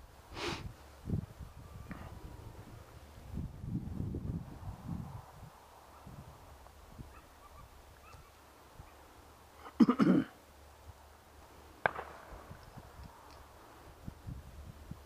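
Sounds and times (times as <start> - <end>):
shotguns firing: 11.8 - 12.6.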